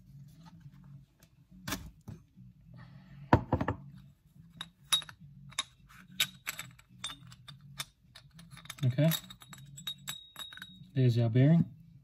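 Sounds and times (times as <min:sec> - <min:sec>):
ringing metal clinks: 0:06.2 - 0:10.9.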